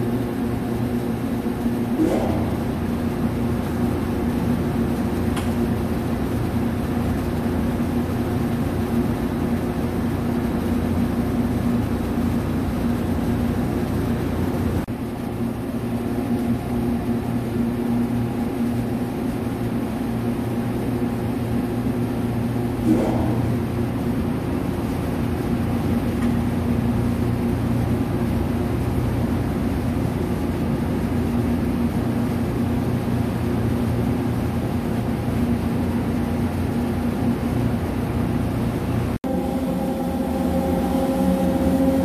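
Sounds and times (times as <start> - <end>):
lathe humming: 39.2 - 42.0.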